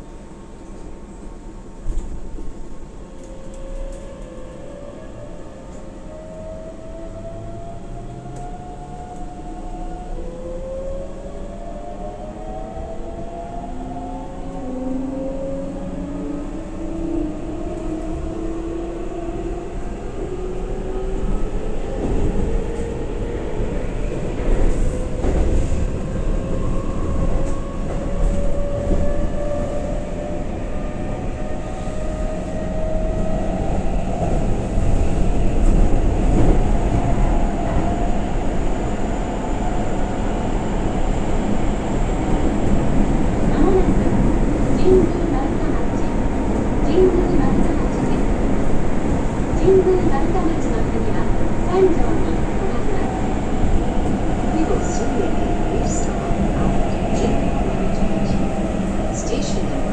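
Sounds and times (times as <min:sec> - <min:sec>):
wheels rumbling on rail: 0:00.0 - 0:59.9.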